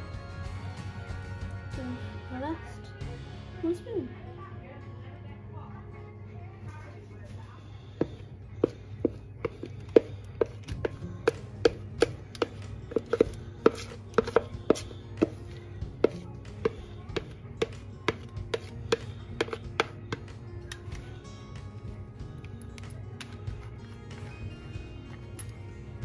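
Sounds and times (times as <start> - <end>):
faint background music: 0.0 - 26.0
spoon tapping plastic jug: 8.0 - 21.1.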